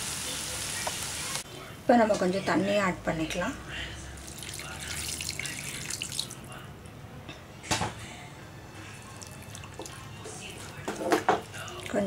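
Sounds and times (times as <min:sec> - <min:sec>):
water poured into frying pan: 0:04.2 - 0:06.4.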